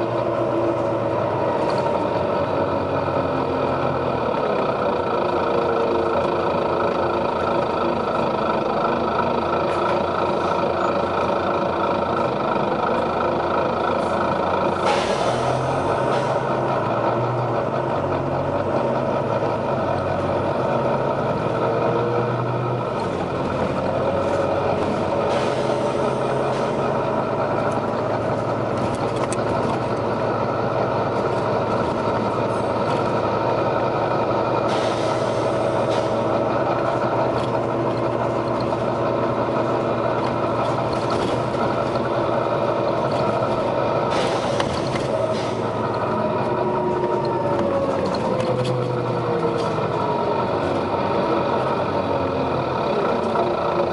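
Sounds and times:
bus diesel engine running: 0.0 - 53.9
air brake hisses: 14.8 - 16.4, 25.3 - 26.8, 34.7 - 36.2, 44.1 - 45.7.

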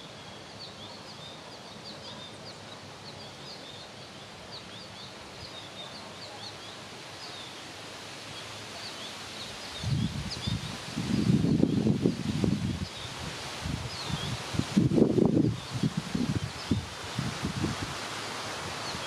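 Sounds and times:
small birds chirping: 0.0 - 14.6
wind buffeting microphone: 9.8 - 19.0.

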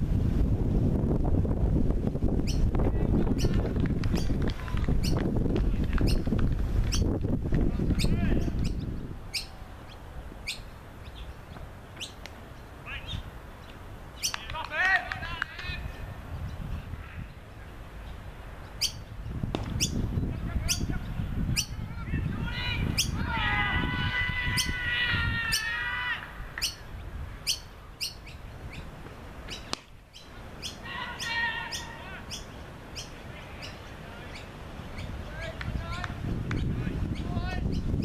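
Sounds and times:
wavering bird call: 8.0 - 11.4, 19.8 - 28.9, 29.5 - 38.0.

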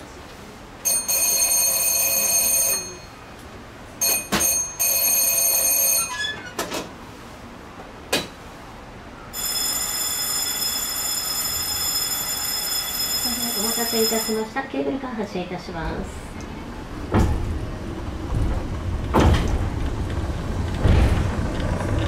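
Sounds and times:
electric bell ringing: 0.8 - 3.2, 4.0 - 6.4, 9.3 - 14.6.

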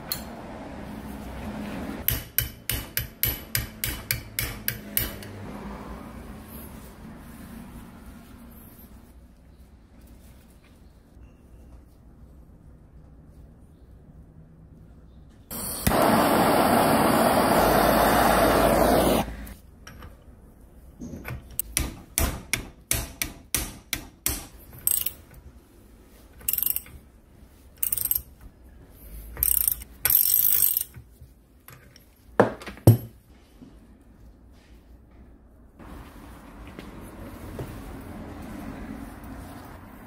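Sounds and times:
ratchet wrench clicking: 24.8 - 25.2, 26.4 - 27.0, 27.8 - 28.3, 29.4 - 31.0.

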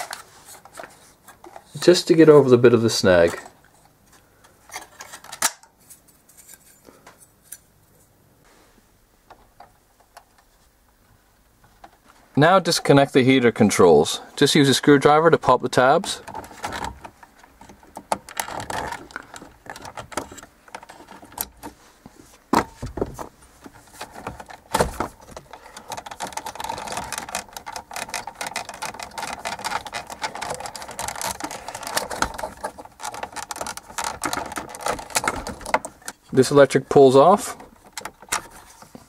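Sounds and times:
plastic connectors clicking and rattling: 15.6 - 21.7, 23.0 - 39.0.

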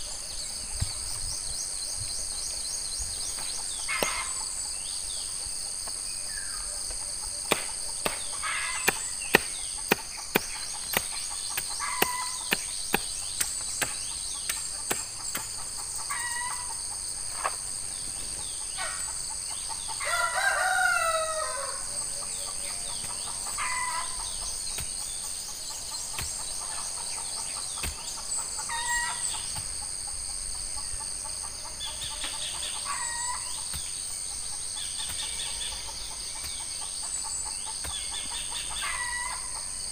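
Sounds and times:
high drone of insects: 0.0 - 39.9
chickens clucking: 6.8 - 13.0, 22.0 - 39.8
rooster crowing: 20.0 - 22.6.

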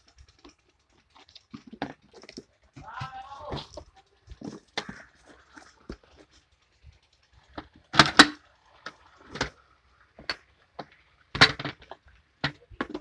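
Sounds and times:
knocks and clatters: 0.0 - 13.0.

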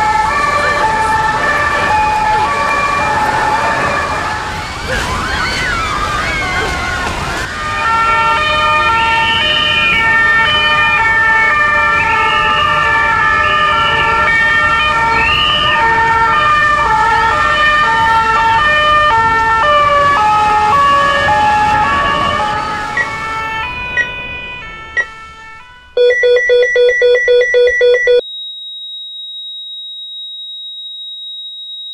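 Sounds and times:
sirens wailing: 0.0 - 28.2
electronic beeps: 26.0 - 30.3.

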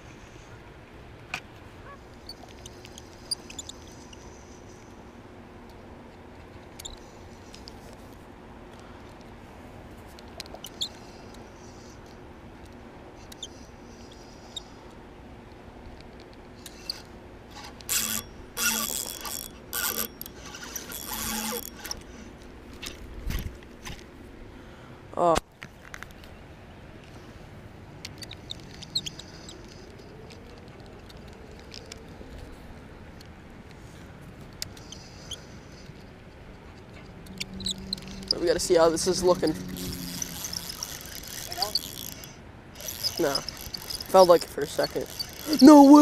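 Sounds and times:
high squeaks: 2.2 - 4.2, 16.7 - 22.3, 28.1 - 30.6, 34.8 - 46.0
fishing reel clicks: 16.6 - 22.1, 37.3 - 46.0
low background rumble: 26.4 - 45.9.

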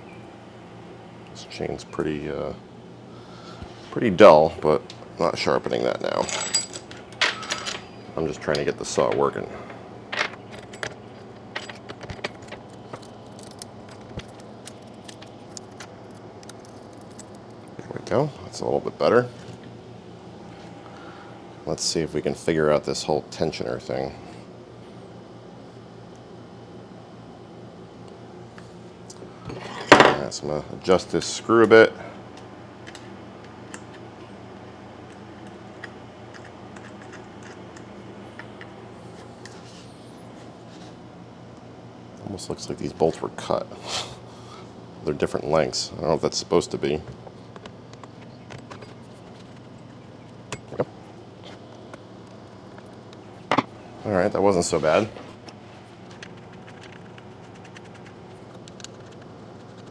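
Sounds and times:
steady low hum: 0.0 - 59.9
saw chain clinking and rattling: 6.2 - 7.8.

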